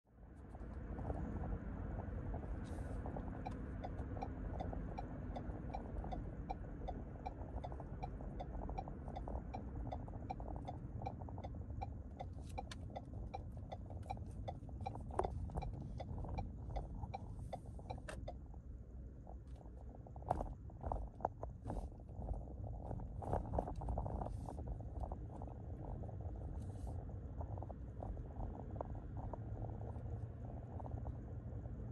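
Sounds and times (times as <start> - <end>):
road and tyre rumble: 0.1 - 31.9
turn signal ticking: 2.2 - 19.4.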